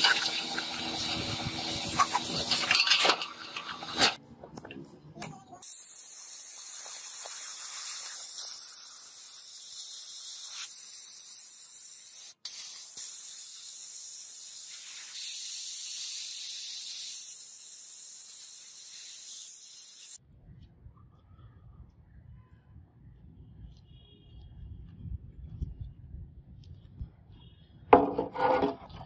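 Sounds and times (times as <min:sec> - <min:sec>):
compressed air gun hissing: 0:05.6 - 0:20.2.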